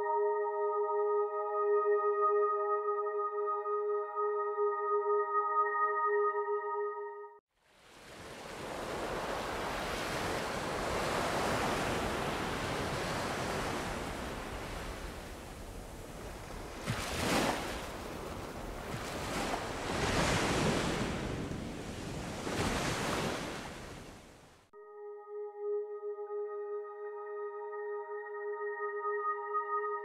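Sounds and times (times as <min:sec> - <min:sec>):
waves washing: 0:07.6 - 0:24.5.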